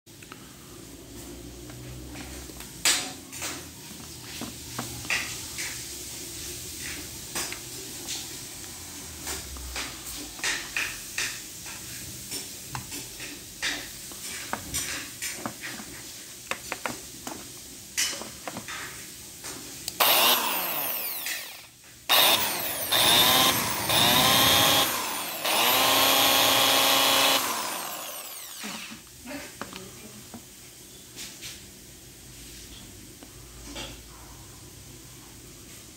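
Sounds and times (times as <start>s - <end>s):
electric drill motor whining: 20.0s - 28.9s.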